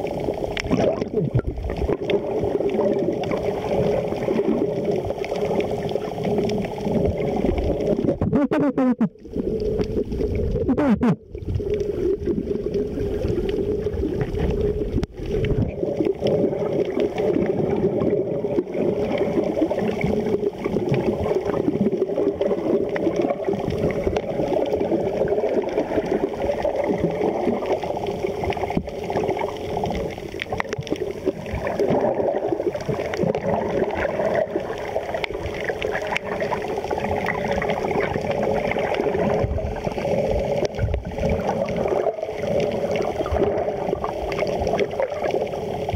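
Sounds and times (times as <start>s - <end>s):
small underwater clicks: 0.0s - 10.7s, 11.3s - 45.9s
underwater churning water: 0.0s - 45.9s
gurgling: 0.6s - 4.8s.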